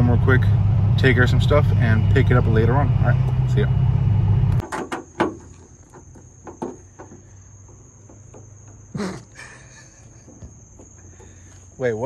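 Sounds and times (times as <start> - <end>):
sharp clicks and knocks: 4.6 - 8.8
crickets trilling: 4.6 - 12.0.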